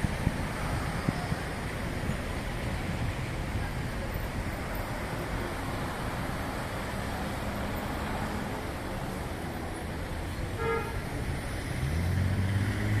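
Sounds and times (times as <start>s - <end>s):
car engines and tyres: 0.0s - 13.0s
car horn toot: 10.6s - 11.0s
vehicle engine drone passing: 11.4s - 13.0s.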